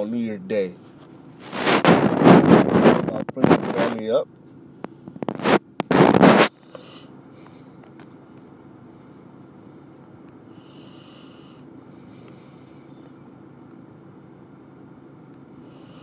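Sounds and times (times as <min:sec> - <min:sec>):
steady low hum: 0:00.0 - 0:16.0
person sniffing: 0:06.3 - 0:07.1
person breathing: 0:10.5 - 0:12.9, 0:15.6 - 0:16.0.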